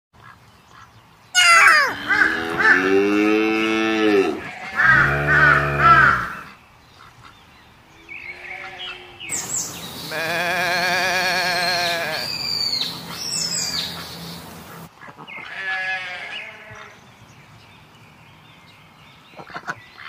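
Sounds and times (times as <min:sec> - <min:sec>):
cow mooing: 0:01.7 - 0:06.5, 0:10.1 - 0:12.4.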